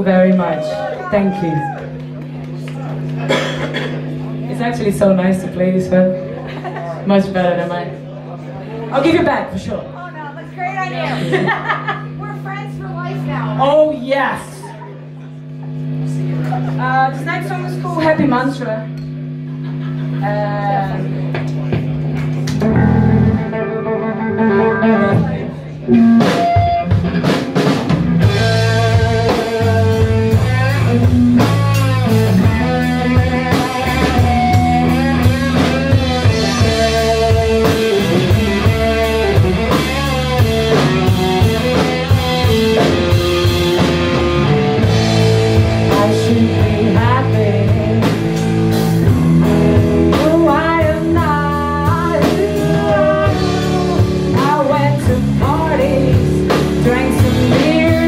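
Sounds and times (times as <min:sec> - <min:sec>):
electric bass guitar: 0:00.0 - 0:58.0
electric guitar: 0:14.6 - 0:58.0
drum kit: 0:21.1 - 0:58.0.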